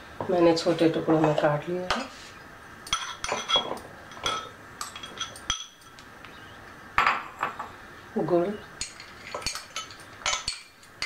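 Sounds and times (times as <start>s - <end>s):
spoon clinking against bowls: 2.8s - 6.1s, 8.8s - 11.0s.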